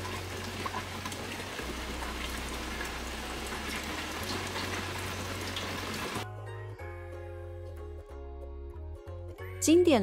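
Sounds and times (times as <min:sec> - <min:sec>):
tap water running into sink: 0:00.0 - 0:06.2
water drips: 0:00.0 - 0:06.2.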